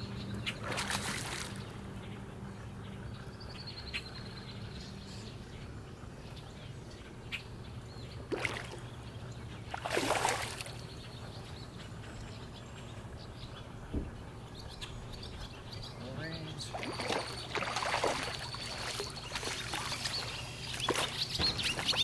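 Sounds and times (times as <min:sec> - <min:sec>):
bird calling: 0:00.0 - 0:22.0
steady low hum: 0:00.0 - 0:22.0
lure splashing into water: 0:00.6 - 0:01.7, 0:08.3 - 0:08.8, 0:09.7 - 0:10.8, 0:16.7 - 0:22.0.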